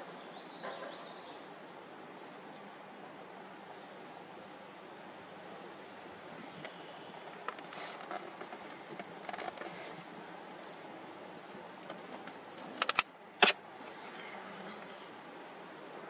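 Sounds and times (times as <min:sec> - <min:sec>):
outdoor background hiss: 0:00.0 - 0:16.0
sharp clicks: 0:11.9 - 0:13.6.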